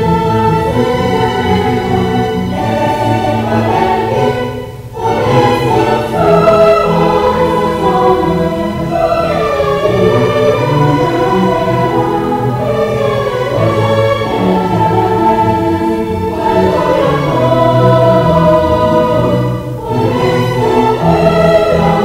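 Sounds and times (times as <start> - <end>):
children's choir singing: 0.0 - 22.0
string orchestra: 0.0 - 22.0.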